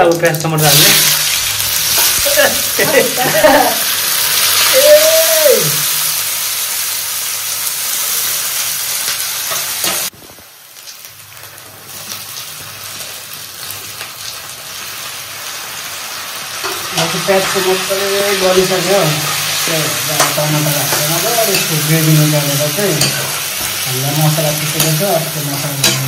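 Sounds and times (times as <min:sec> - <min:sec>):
onions sizzling in hot oil: 0:00.0 - 0:26.0.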